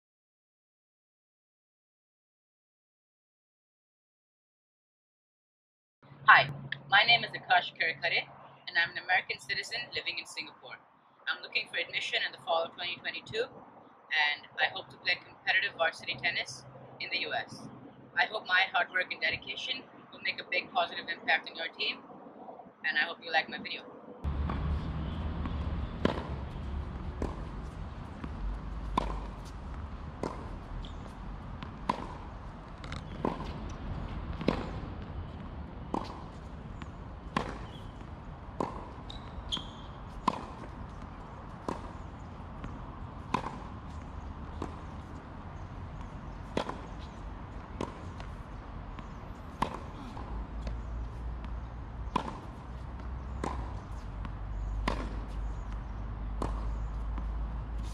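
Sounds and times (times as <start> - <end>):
tennis racket striking ball: 24.2 - 45.3, 46.0 - 57.9
ball bouncing on hard court: 24.2 - 57.9.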